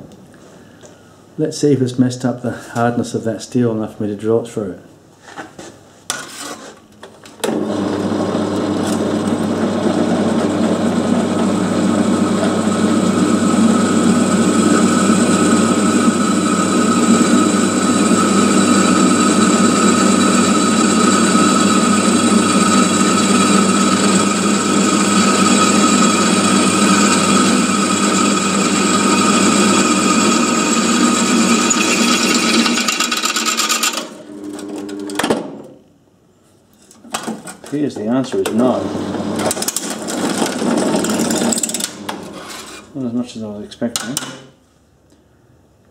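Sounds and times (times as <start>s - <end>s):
drill press motor hum: 7.4s - 35.2s, 38.7s - 42.8s
drill bit scraping into steel: 22.4s - 34.1s.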